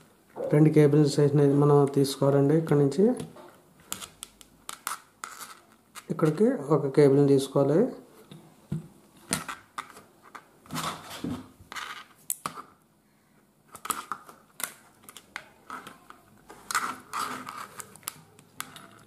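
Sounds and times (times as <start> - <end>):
wire rustling against plastic: 13.7 - 19.0.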